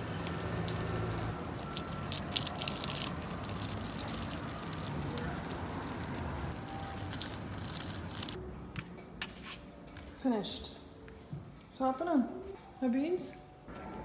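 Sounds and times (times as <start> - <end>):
water pouring onto plants: 0.0 - 8.4.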